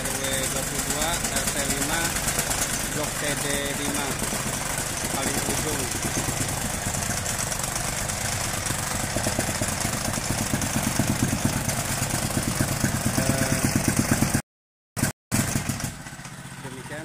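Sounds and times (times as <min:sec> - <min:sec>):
tamping rammer pounding soil: 0:00.0 - 0:14.4, 0:15.0 - 0:17.0.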